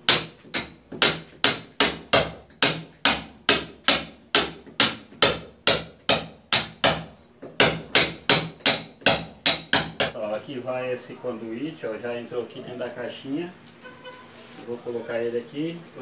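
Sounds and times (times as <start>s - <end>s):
hammer striking steel chisel: 0.1s - 10.2s.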